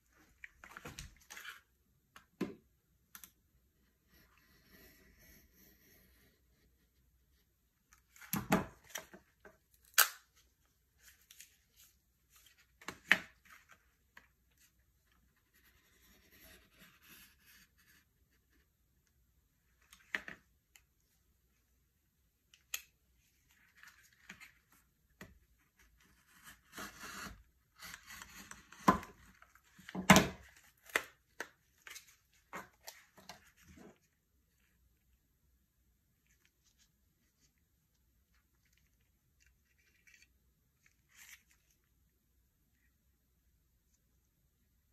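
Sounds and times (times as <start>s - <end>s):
plastic snapping: 9.8s - 10.3s.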